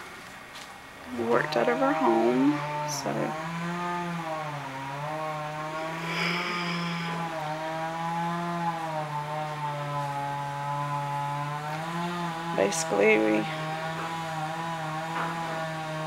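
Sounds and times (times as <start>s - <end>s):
small gasoline engine running: 1.1s - 16.0s.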